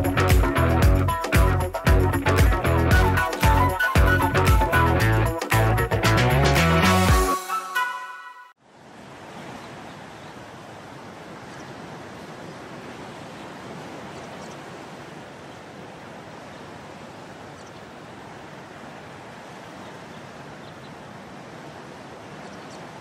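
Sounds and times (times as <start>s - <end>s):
choppy waves: 0.0s - 5.6s, 8.6s - 23.0s
wind: 8.6s - 23.0s.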